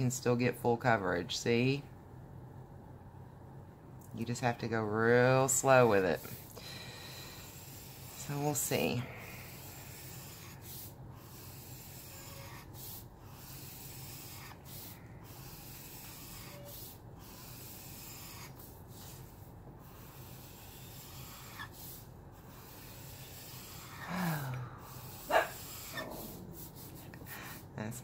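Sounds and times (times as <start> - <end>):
marker nib rubbing on paper: 7.2 - 28.0.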